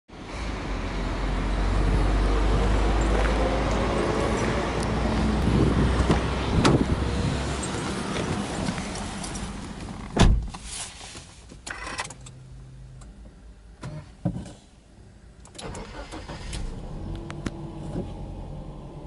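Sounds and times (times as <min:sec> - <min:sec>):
car door opening click: 0:10.1 - 0:10.6.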